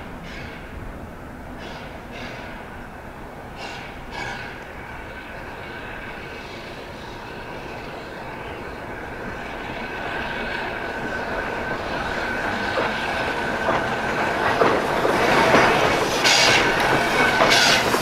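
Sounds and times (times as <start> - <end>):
steam locomotive running: 0.0 - 18.0
high wheel flange squeal: 16.2 - 18.0.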